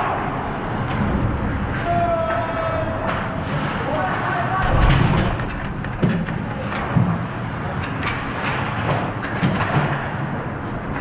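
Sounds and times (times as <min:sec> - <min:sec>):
sharp knocks: 0:04.6 - 0:07.1
hockey sticks clacking: 0:05.2 - 0:10.2.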